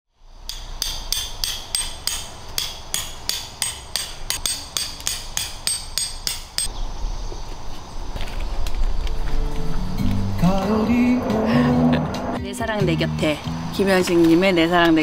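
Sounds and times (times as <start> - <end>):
hammer striking tent peg: 0.5 - 6.7.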